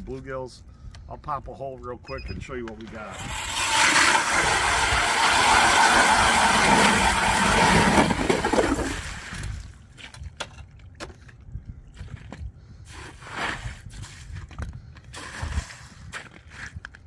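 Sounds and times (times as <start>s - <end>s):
ice auger drilling ice: 3.1s - 9.7s, 15.1s - 16.8s.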